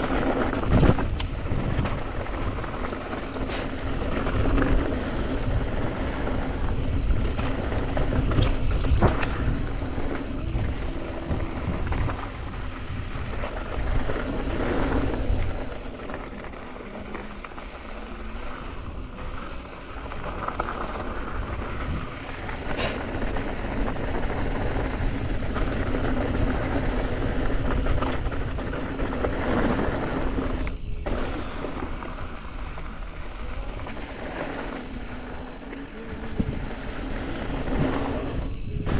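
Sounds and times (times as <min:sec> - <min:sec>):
bike rattling and knocking: 0:00.0 - 0:32.7
wind buffeting microphone: 0:00.0 - 0:38.9.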